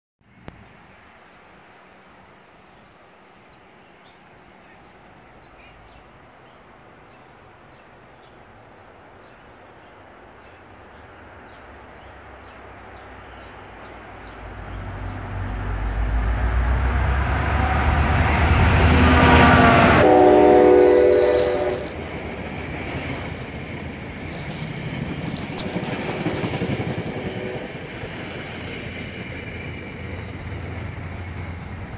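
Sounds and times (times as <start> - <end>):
diesel locomotive rumble: 13.2 - 31.9
train horn blast: 16.5 - 22.2, 27.1 - 27.8
wheels clicking over rail joints: 21.2 - 31.9.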